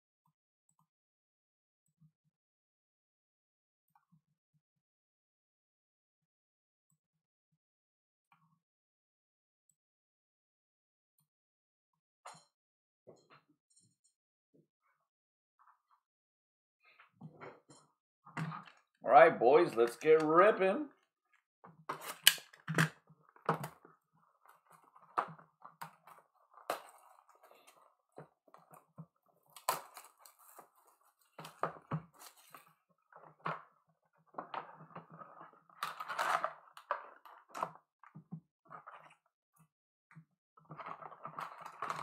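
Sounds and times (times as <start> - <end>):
shrink wrap crinkling and tearing: 29.4 - 32.7, 34.6 - 37.6.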